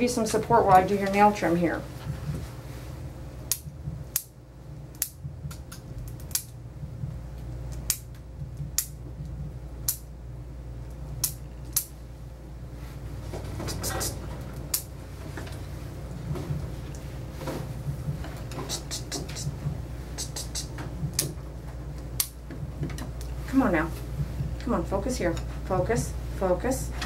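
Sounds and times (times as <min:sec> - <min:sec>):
muffled bass thumping music: 0:01.9 - 0:02.5, 0:03.5 - 0:04.2, 0:05.1 - 0:07.4, 0:08.2 - 0:09.9, 0:16.1 - 0:16.9, 0:17.7 - 0:18.4, 0:19.4 - 0:20.0, 0:20.8 - 0:24.9
nail clippers clicking: 0:04.9 - 0:06.5, 0:11.2 - 0:11.9, 0:22.2 - 0:22.4.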